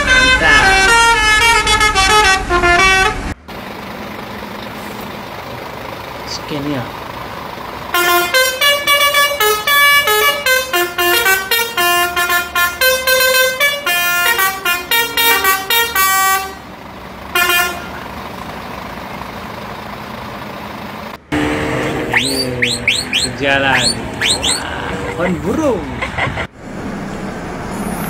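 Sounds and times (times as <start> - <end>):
lorry musical horn playing tune: 0.0 - 3.4, 7.9 - 16.6, 17.4 - 18.0.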